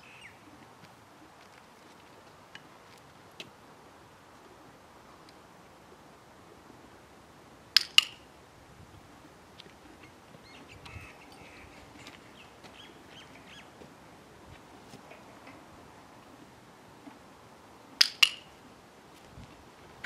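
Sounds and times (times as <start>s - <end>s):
faint ticks and rustling: 0.4s - 3.6s, 8.9s - 17.3s.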